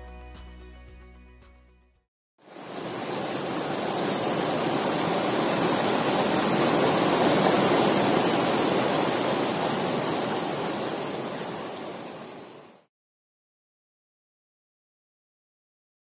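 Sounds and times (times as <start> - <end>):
water rushing over boulders: 2.4 - 12.9.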